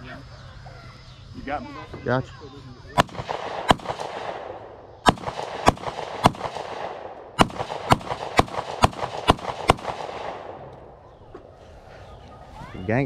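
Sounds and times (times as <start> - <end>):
gunshots with echo: 3.0 - 10.7.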